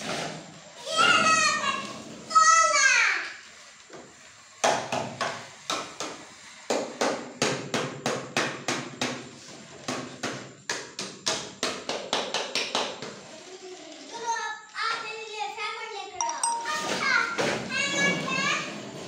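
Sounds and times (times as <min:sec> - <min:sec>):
knocks on toy tricycle: 0:04.0 - 0:13.2.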